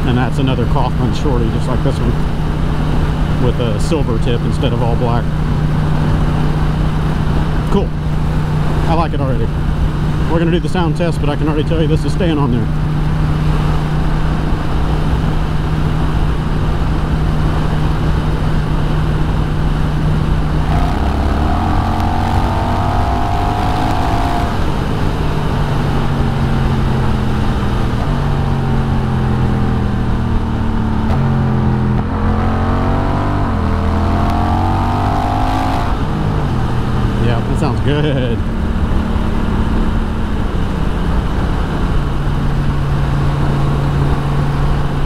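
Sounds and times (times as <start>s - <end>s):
motorcycle engine at speed: 0.0s - 45.0s.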